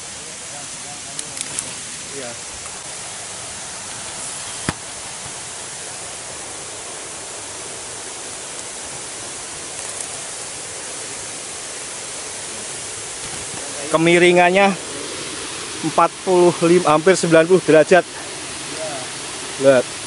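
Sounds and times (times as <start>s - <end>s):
outdoor background hiss: 0.0s - 20.0s.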